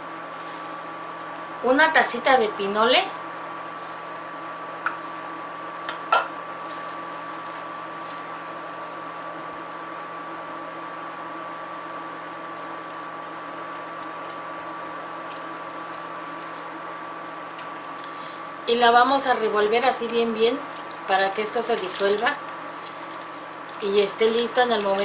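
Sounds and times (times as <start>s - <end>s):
electric cooktop humming: 0.0s - 25.0s.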